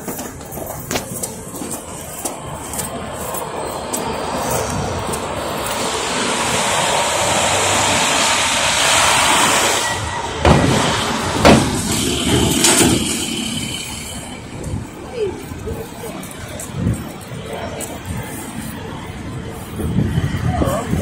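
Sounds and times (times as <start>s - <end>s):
heavy truck passing: 0.0s - 21.0s
sharp bangs: 8.9s - 14.4s.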